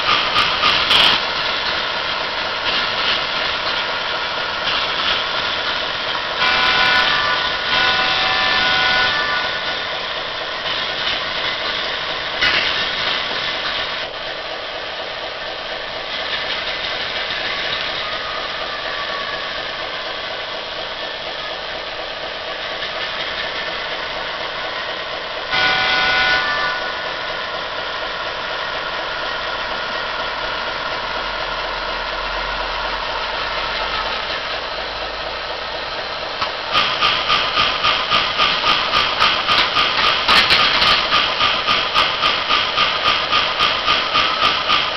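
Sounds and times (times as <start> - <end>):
locomotive horn: 6.3 - 9.8, 25.5 - 27.3.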